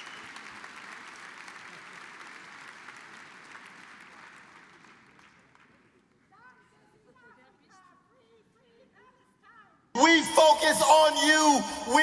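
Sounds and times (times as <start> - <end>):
audience applauding: 0.0 - 5.9.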